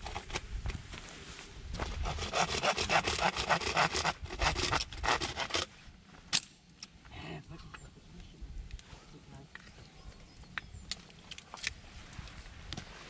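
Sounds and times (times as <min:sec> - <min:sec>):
hand saw cutting wood: 0:01.8 - 0:05.7.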